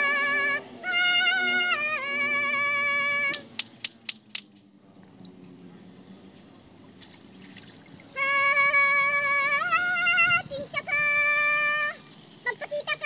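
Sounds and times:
sharp clicks: 3.3 - 4.6
faint trickling water: 4.8 - 13.0.

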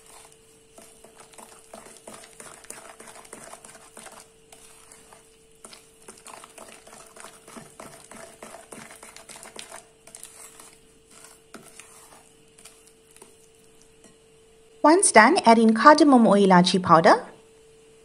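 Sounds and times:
spoon scraping thick mixture: 0.0 - 14.2.

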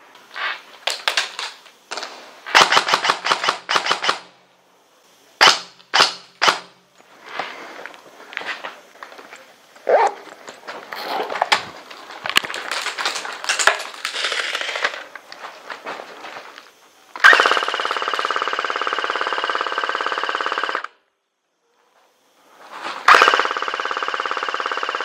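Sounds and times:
airsoft gun full-auto burst: 0.9 - 4.3, 5.4 - 6.7, 12.4 - 15.0, 17.1 - 21.0, 23.0 - 25.0
scuffing and clicks: 7.0 - 16.8.

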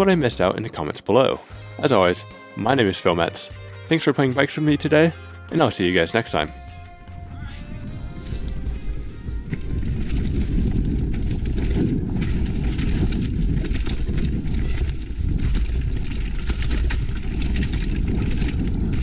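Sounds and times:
wind and tyres rumbling: 6.8 - 19.0
bike clicking and rattling: 8.2 - 19.0.

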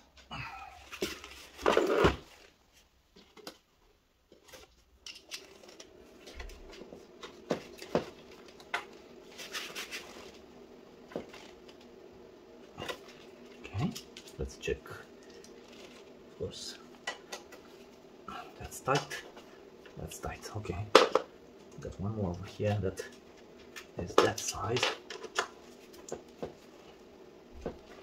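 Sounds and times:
hands handling wiring and connectors: 0.9 - 3.7, 4.3 - 10.4.

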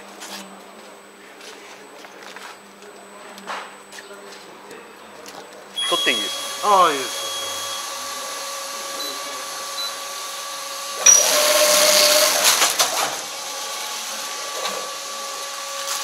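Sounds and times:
wrapping machine humming: 5.8 - 16.0.

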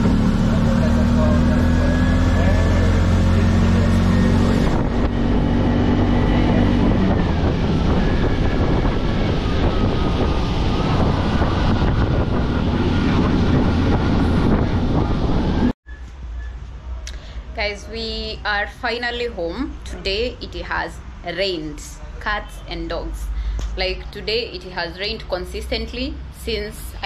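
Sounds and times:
small engine humming: 0.0 - 15.8
tyres on wet road: 0.0 - 15.8
wind rushing: 2.9 - 15.8.

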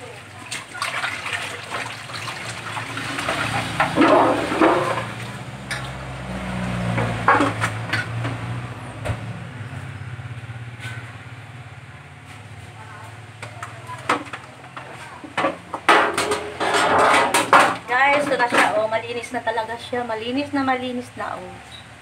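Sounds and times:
water splashing in a metal basin: 0.0 - 8.7.

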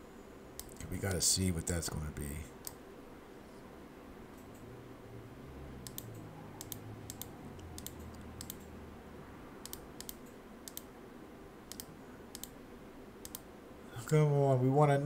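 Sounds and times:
faint low hum: 0.0 - 15.0
computer mouse clicking: 2.6 - 2.8, 5.8 - 8.8, 9.6 - 10.9, 11.7 - 12.6, 13.2 - 13.5.

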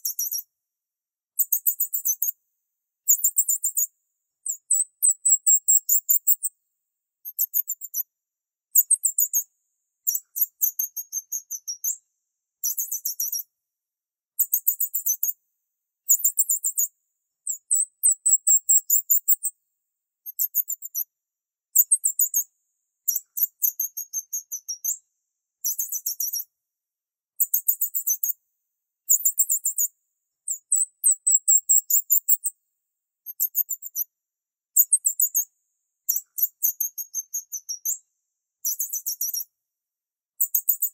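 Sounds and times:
high-pitched bird-like chirping: 4.5 - 6.5, 17.5 - 19.5, 30.5 - 32.5, 38.6 - 39.4.

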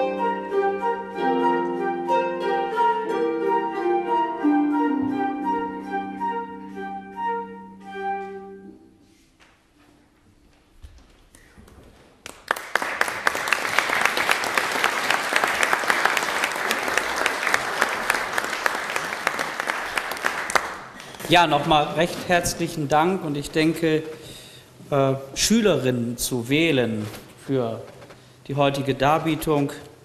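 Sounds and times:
live instrumental music: 0.0 - 9.2
audience applauding: 12.2 - 21.3.

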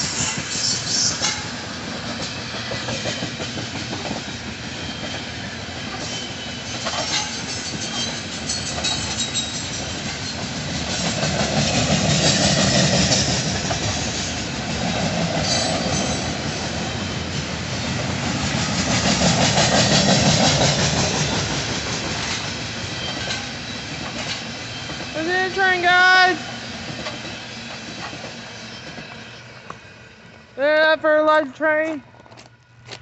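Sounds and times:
steel wheels clicking over rail joints: 0.0 - 5.2, 5.9 - 16.9, 18.0 - 29.8
freight train rumble: 0.0 - 33.0.

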